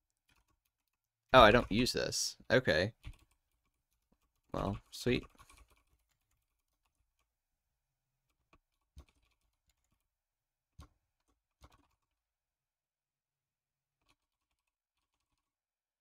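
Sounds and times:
faint keyboard keystrokes: 2.9 - 7.4, 8.2 - 10.1, 10.7 - 12.2.

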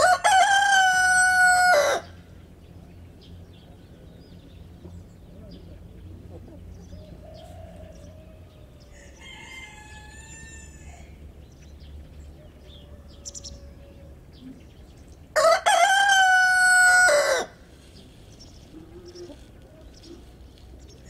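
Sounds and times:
faint rooster call: 0.0 - 2.2, 7.0 - 11.2, 12.5 - 14.5, 15.4 - 17.6
rooster crowing: 0.0 - 2.2, 7.1 - 11.2, 12.6 - 14.2, 15.4 - 17.6.

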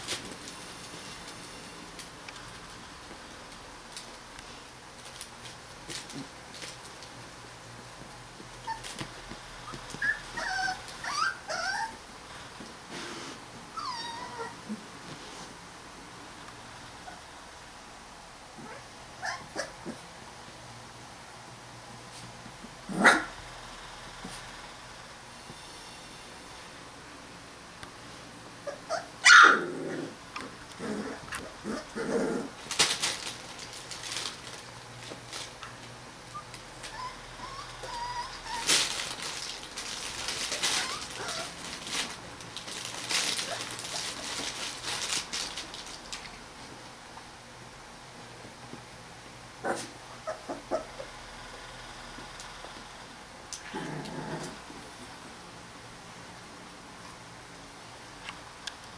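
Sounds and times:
crackling nylon play tunnel: 0.0 - 17.2, 29.8 - 47.4
puppies squeaking and whining: 9.7 - 12.0, 13.7 - 14.7, 36.2 - 39.0, 40.4 - 41.6
puppy growling: 9.7 - 12.0, 13.7 - 14.9, 22.8 - 23.4, 28.6 - 32.7, 36.3 - 39.5, 40.2 - 42.1, 49.6 - 51.2, 53.5 - 55.1
puppy barking: 23.0 - 23.4, 28.7 - 29.7.

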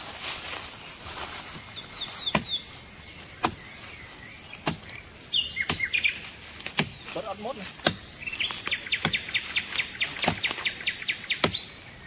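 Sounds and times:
small birds chirping: 0.0 - 12.0
machete chopping vine: 2.3 - 2.5, 3.4 - 3.6, 4.6 - 5.0, 6.6 - 7.2, 7.8 - 10.7, 11.3 - 11.7.

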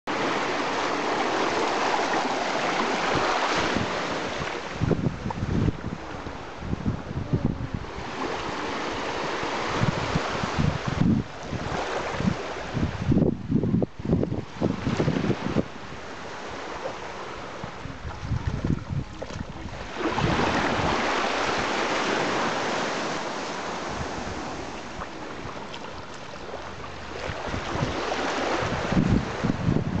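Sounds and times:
wind buffeting microphone: 1.0 - 30.0
shallow sea water washing: 14.8 - 29.6.

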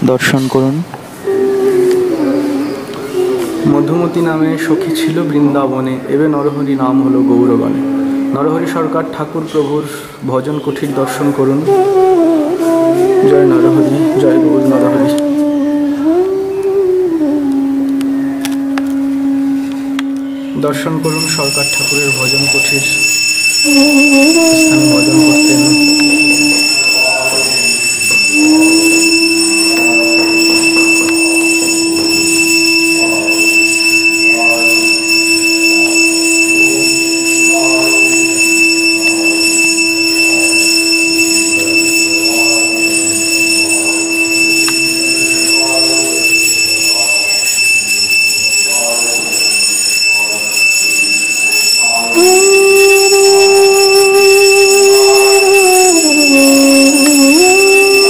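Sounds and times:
higher droning notes: 1.0 - 47.5
low droning note: 6.4 - 9.5, 11.8 - 21.6, 23.7 - 27.5
high-pitched whine: 11.6 - 47.6.

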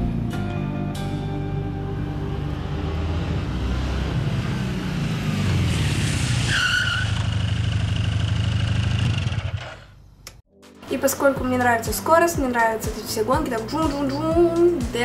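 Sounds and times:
motorcycle engine: 1.0 - 10.4
tyre squeal: 6.2 - 7.6.

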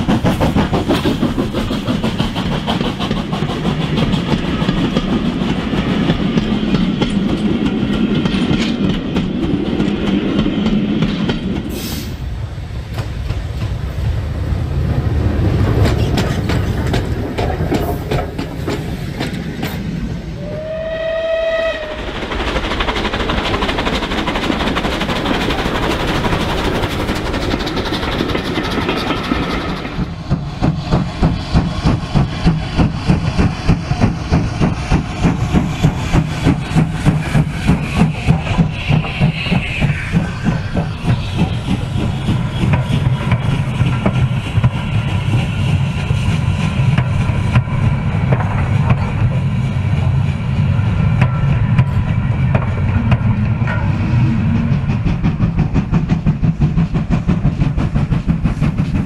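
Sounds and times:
model train wheels and motors rumbling: 0.0 - 59.0
steam whistle blast: 20.4 - 22.0.

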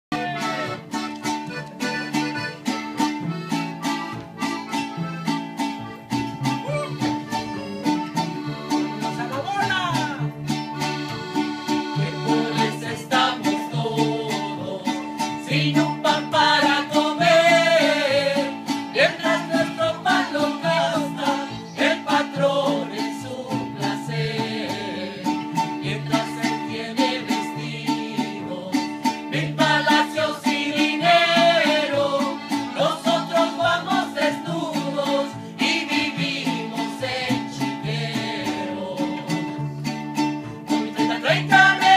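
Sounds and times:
accordion: 0.1 - 41.9
strummed acoustic guitars: 0.1 - 41.9
voices singing a melody: 11.5 - 39.6, 40.7 - 41.9.

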